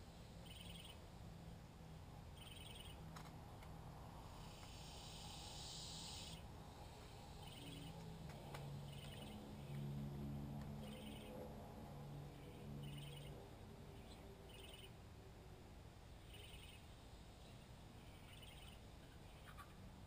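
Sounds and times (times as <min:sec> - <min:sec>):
low hum: 0:00.0 - 0:20.0
high hiss: 0:04.0 - 0:08.0.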